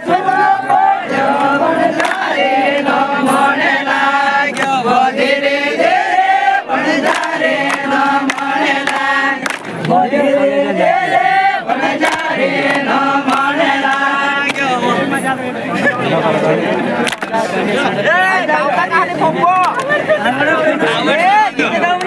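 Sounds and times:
group singing in unison: 0.0s - 17.6s.

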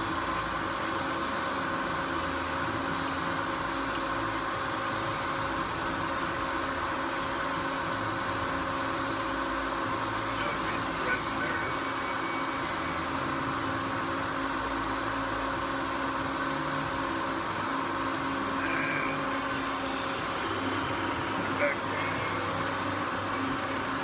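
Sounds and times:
lathe gear whine and hum: 0.0s - 24.0s.

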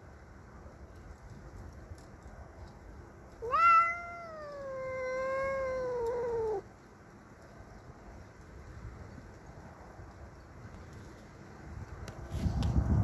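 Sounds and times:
cat yowling: 3.4s - 6.6s.

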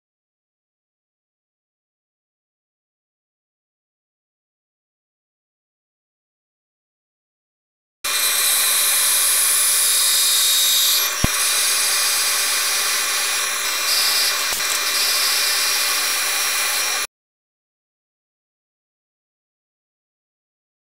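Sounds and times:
milling spindle whine: 8.1s - 17.1s
sharp click: 11.2s - 11.4s, 14.2s - 14.9s.

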